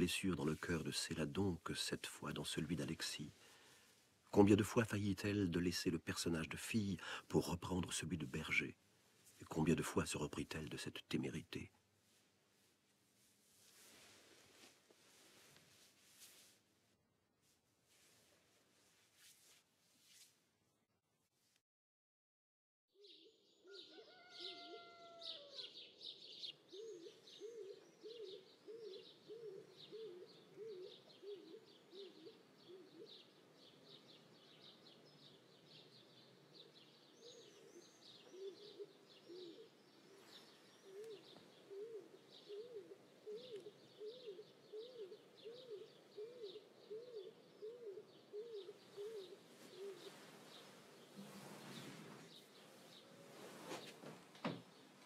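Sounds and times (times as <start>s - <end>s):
bird low repeated call: 37.2s - 50.1s.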